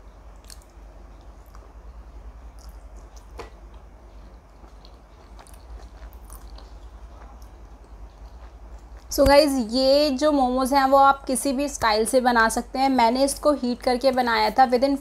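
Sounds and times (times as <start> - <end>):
steady low hum: 0.0 - 15.0
faint chewing: 0.3 - 9.2.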